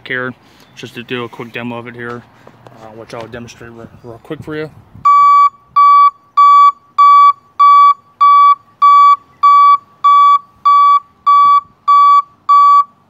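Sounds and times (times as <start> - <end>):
vehicle backup alarm beeping: 5.0 - 13.0.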